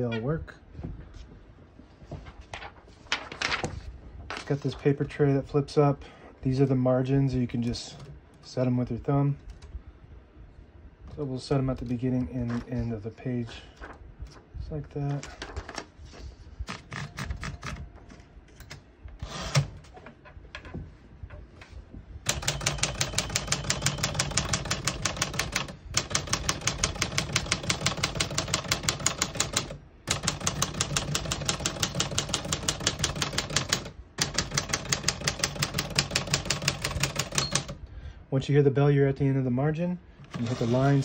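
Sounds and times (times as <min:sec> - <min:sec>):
manual typewriter typing: 0:16.7 - 0:17.9, 0:22.3 - 0:37.8, 0:40.3 - 0:41.0.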